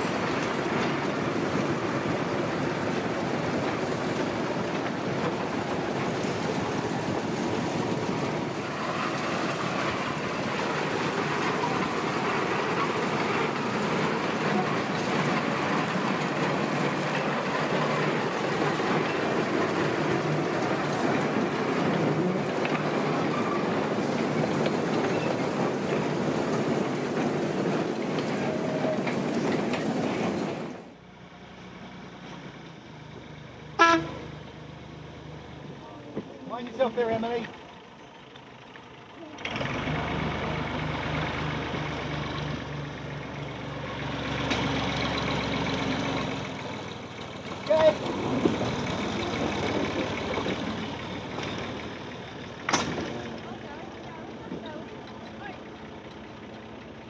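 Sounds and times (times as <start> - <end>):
train wheels clattering on rail: 0.0 - 30.9, 41.1 - 57.0
diesel locomotive engine: 0.0 - 57.0
locomotive horn toot: 33.8 - 34.3.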